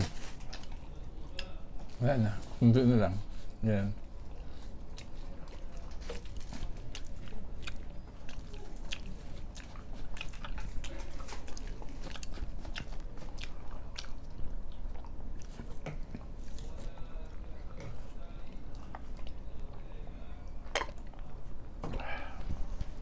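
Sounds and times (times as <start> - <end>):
person chewing: 0.1 - 1.6, 4.1 - 19.6, 20.6 - 21.3.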